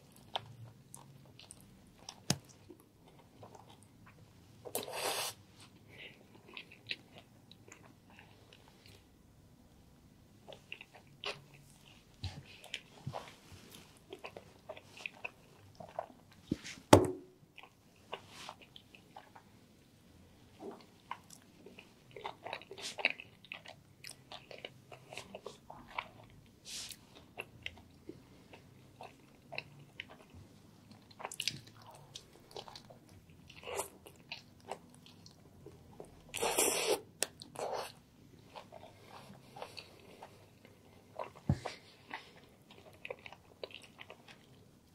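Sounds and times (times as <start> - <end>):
wet chewing of sandwich: 0.0 - 9.1, 10.4 - 16.5, 17.5 - 44.9.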